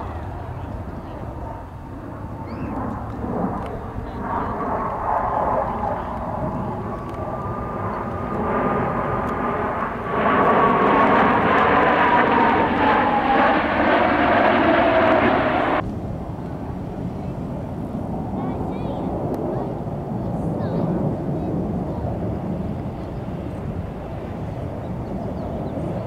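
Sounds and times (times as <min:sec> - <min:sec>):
jets roaring overhead: 0:00.0 - 0:26.0
jet whine sliding down in pitch: 0:04.4 - 0:15.8.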